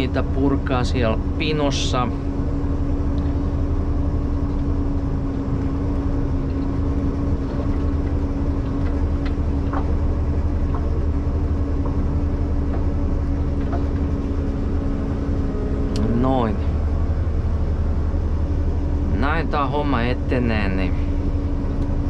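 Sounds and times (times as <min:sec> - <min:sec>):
diesel engine drone: 0:00.0 - 0:22.0
faint clicks and knocks: 0:06.4 - 0:14.1.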